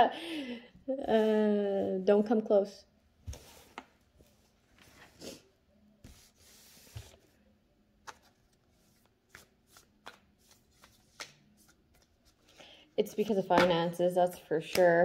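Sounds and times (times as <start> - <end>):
cards being shuffled: 8.0 - 12.6.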